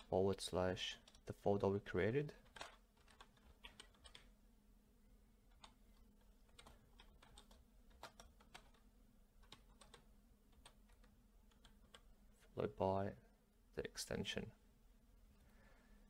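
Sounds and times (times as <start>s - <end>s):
keyboard typing: 0.9s - 1.4s, 2.3s - 4.3s, 5.5s - 12.1s.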